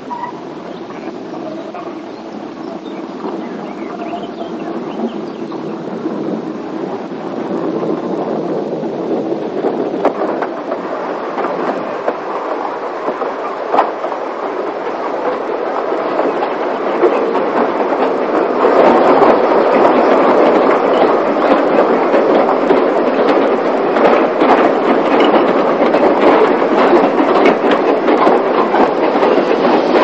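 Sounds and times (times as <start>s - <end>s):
steam locomotives running: 0.0s - 30.0s.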